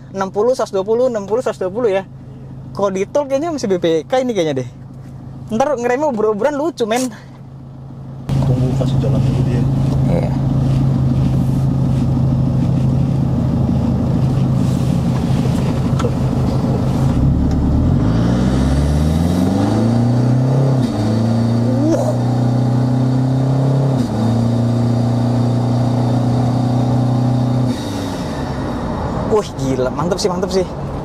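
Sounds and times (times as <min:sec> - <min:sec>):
diesel engine revving: 0:07.8 - 0:31.0.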